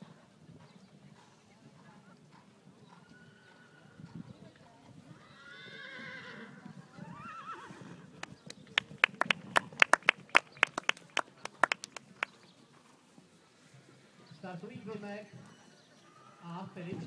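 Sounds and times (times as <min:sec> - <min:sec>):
people clapping: 0:08.2 - 0:12.3.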